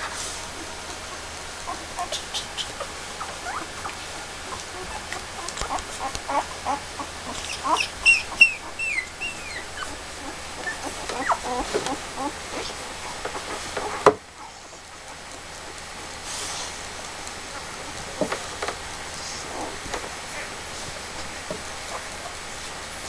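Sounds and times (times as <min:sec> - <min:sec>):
puppies squeaking and whimpering: 0:00.0 - 0:13.7.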